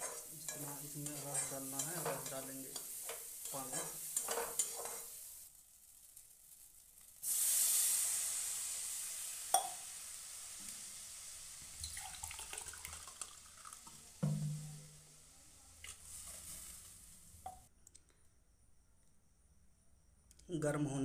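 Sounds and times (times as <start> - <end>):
spatula scraping pan: 0.0 - 5.2, 16.0 - 17.0
water hissing in hot pan: 0.0 - 17.7.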